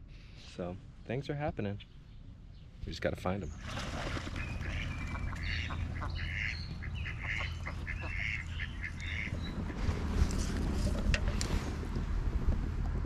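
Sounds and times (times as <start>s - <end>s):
wind rumble on microphone: 2.1s - 13.0s
ducks quacking: 4.0s - 9.9s.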